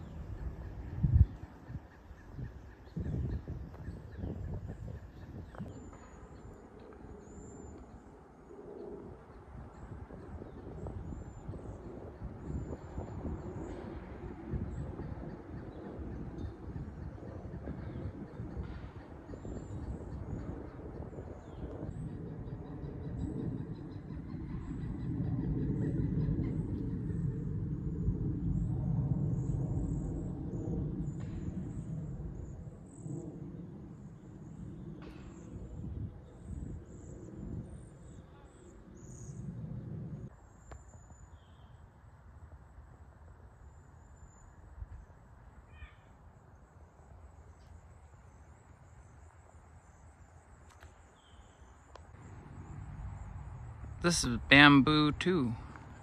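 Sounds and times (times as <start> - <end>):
bird chirp: 0.0 - 13.9, 43.7 - 55.6
low rumble on microphone: 0.0 - 40.3
low outdoor rumble: 51.4 - 56.0.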